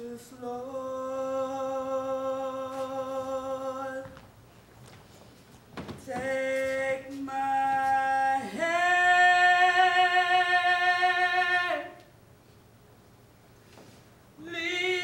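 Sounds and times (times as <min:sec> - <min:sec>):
woman singing unaccompanied: 0:06.0 - 0:12.0, 0:14.4 - 0:15.0.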